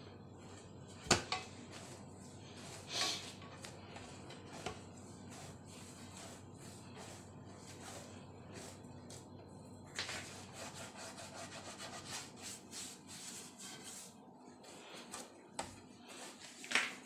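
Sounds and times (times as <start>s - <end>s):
hands kneading dough in a bowl: 0.4s - 17.0s.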